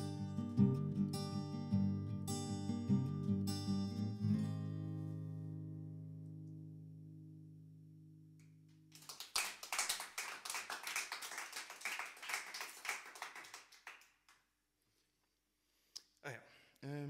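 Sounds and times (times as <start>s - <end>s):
acoustic guitar chord ringing: 0.0s - 8.7s
small group applauding: 8.8s - 14.5s.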